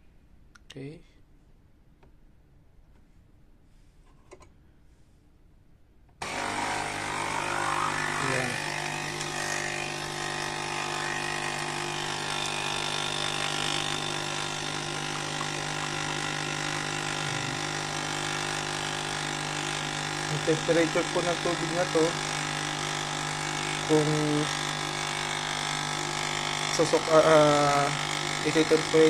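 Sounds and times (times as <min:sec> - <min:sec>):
coffee machine pump buzzing: 0:06.2 - 0:29.0.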